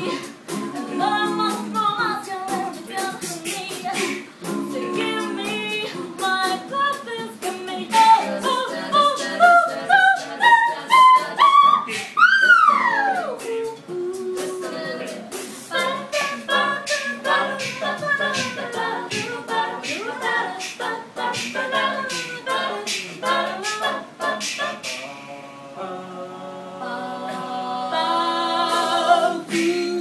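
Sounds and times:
percussive beat: 0:00.0 - 0:25.1, 0:28.7 - 0:30.0
a cappella group singing: 0:00.0 - 0:30.0.

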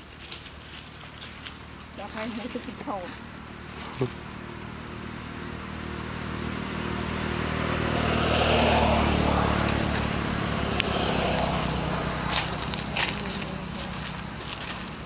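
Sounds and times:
vehicle engine passing by: 0:03.3 - 0:15.0.

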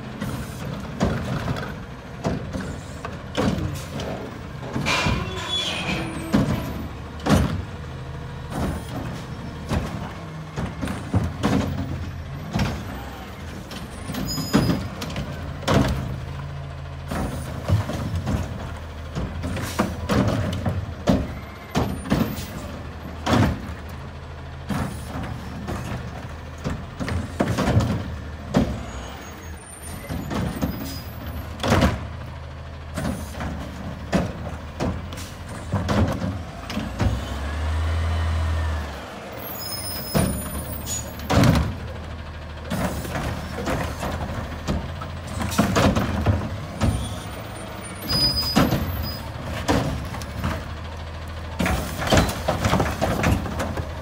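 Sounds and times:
diesel engine running: 0:00.0 - 0:54.0
carts and lids banging: 0:00.3 - 0:07.7, 0:51.6 - 0:54.0
air brakes hissing: 0:35.1 - 0:35.7
engine revving: 0:36.6 - 0:39.3.

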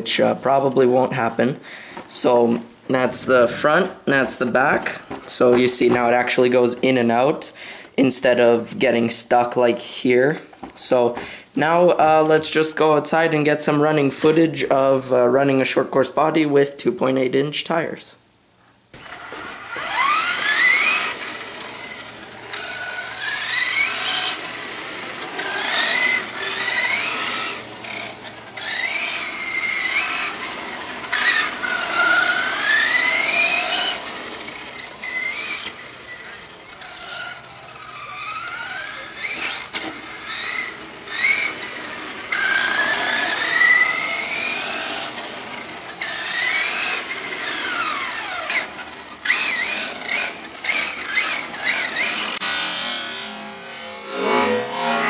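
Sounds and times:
electric motor whining: 0:18.9 - 0:55.0
tyres rolling on concrete: 0:19.0 - 0:52.4.

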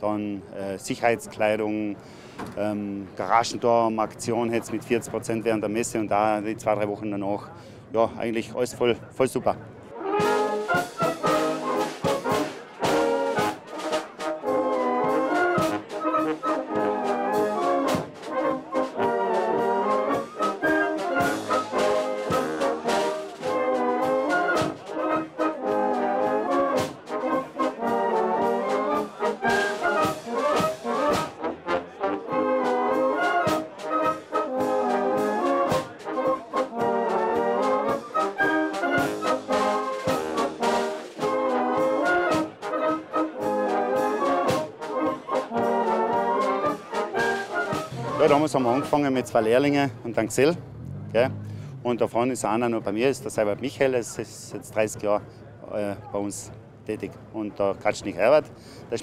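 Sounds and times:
wind band playing: 0:09.8 - 0:54.5.

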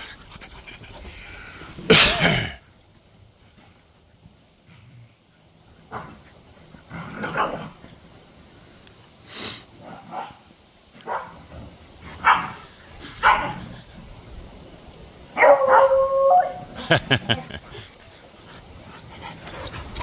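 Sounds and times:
dogs barking: 0:11.0 - 0:11.4, 0:12.2 - 0:12.6, 0:13.2 - 0:13.6, 0:15.4 - 0:16.2.

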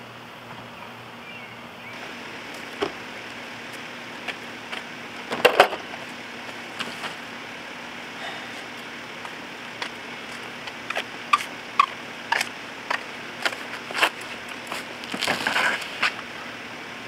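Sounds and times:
faint steady hum: 0:00.0 - 0:17.0
scraping and rustling: 0:04.7 - 0:07.2, 0:12.3 - 0:16.2
footsteps: 0:05.5 - 0:07.2.

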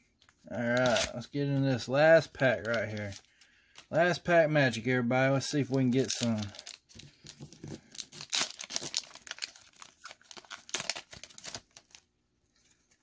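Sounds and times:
foil wrapper tearing and crinkling: 0:05.9 - 0:12.1.

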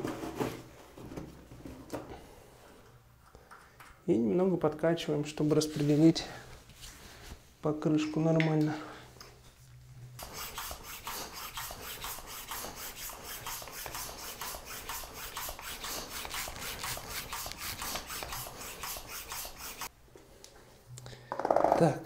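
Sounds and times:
hand bicycle pump strokes: 0:10.2 - 0:19.9.

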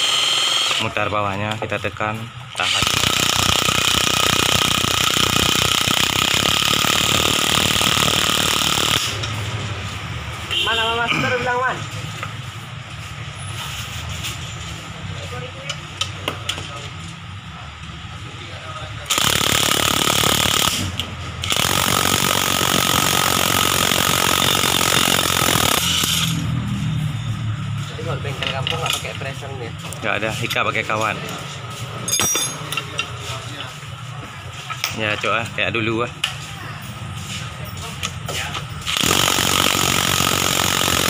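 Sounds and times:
impact wrench rattling: 0:02.5 - 0:09.4, 0:19.0 - 0:26.4, 0:32.0 - 0:33.2, 0:38.1 - 0:41.0.

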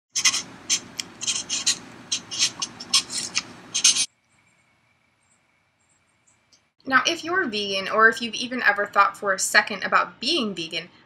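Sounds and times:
pen scribbling on paper: 0:00.2 - 0:04.1.

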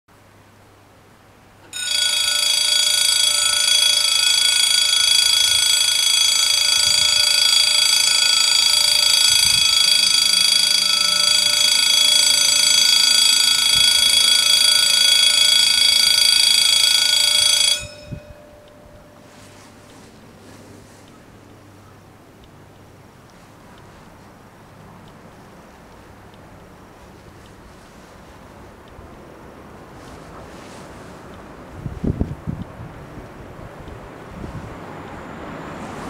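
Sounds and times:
electric level crossing bells ringing: 0:01.6 - 0:20.6.

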